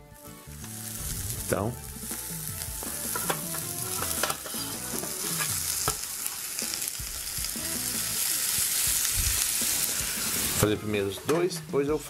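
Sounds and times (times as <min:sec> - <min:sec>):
bread sizzling in frying pan: 0:00.2 - 0:10.8
metal tongs clicking on pan: 0:03.1 - 0:05.2.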